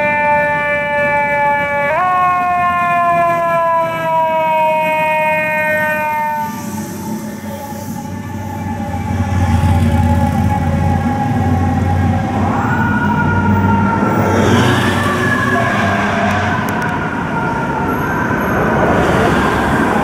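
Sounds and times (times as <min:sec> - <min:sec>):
fire truck siren: 0:00.0 - 0:20.0
truck engine rumble: 0:06.5 - 0:20.0.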